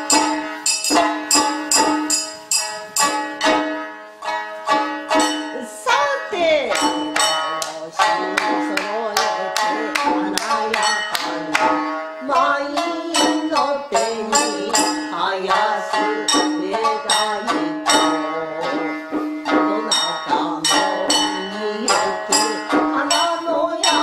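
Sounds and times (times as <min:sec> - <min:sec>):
drum strikes: 0:00.0 - 0:03.8, 0:06.7 - 0:12.0
shamisen plucked quickly: 0:00.0 - 0:24.0
person singing: 0:05.2 - 0:24.0.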